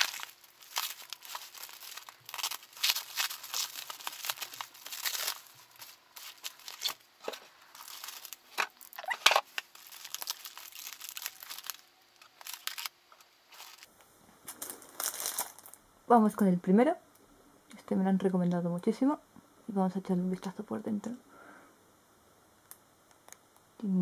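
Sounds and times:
plastic packaging crinkling: 0:00.0 - 0:15.8.

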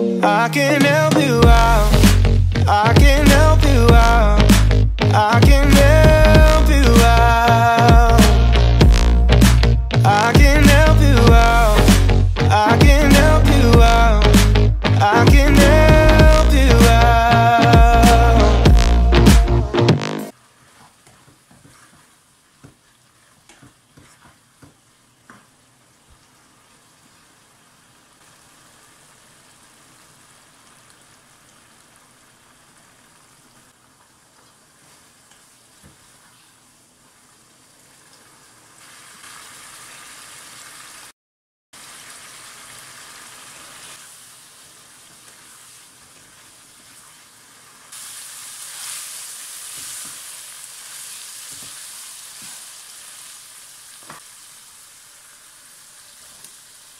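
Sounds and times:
meat sizzling in oil: 0:20.3 - 0:41.1, 0:41.8 - 0:56.9.

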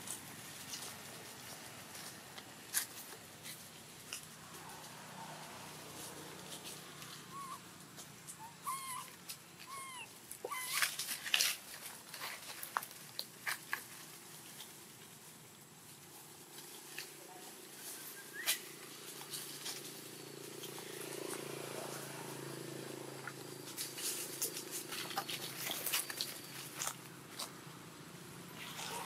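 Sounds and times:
young monkey whimpering cries: 0:07.2 - 0:07.7, 0:08.3 - 0:10.8.

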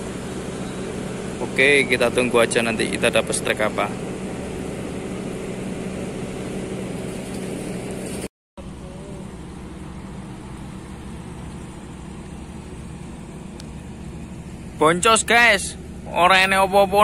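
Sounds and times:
noisy background: 0:00.0 - 0:05.7
ship engines droning: 0:00.0 - 0:17.0.

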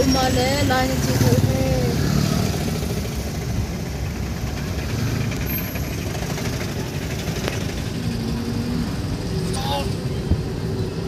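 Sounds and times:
road noise: 0:00.0 - 0:11.0
vehicle engine running: 0:00.0 - 0:11.0.

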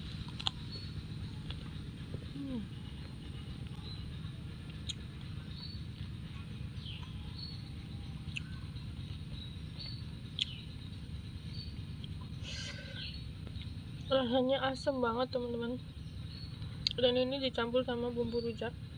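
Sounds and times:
low rumble: 0:00.0 - 0:18.9
chewing clicks: 0:00.1 - 0:00.8, 0:04.6 - 0:06.1, 0:08.3 - 0:09.2, 0:09.8 - 0:10.6
high bird chirps: 0:06.7 - 0:14.1.

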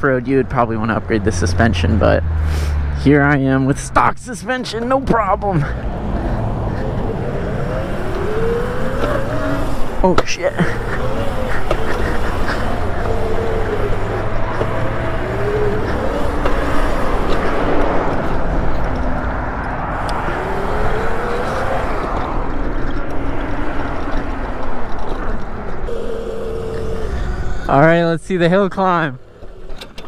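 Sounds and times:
electric motor whining: 0:05.6 - 0:30.0
wind rush on microphone: 0:10.7 - 0:27.8.

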